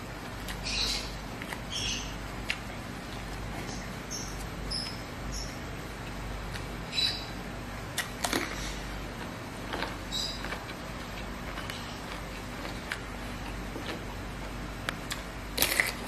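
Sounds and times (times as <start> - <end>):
wet chewing and lip smacks: 2.4 - 4.5
crunch of biting cucumber: 15.0 - 16.0.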